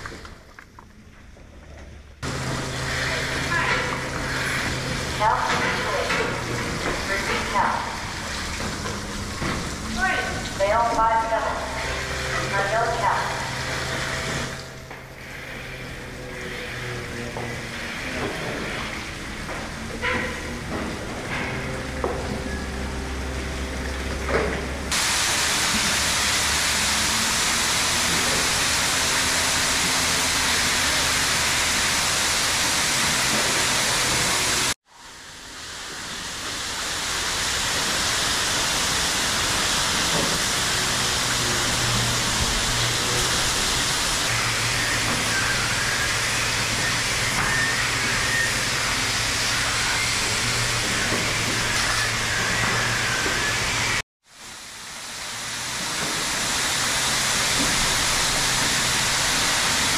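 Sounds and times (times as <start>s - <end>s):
low machinery hum: 0.0s - 59.9s
hose spraying onto concrete: 2.2s - 15.8s, 24.9s - 34.8s, 35.4s - 59.9s.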